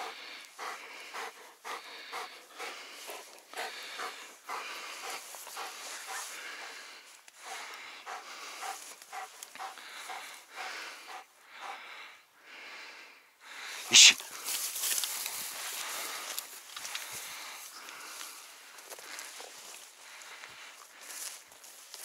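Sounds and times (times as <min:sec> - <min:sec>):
dog panting: 0:00.0 - 0:12.1.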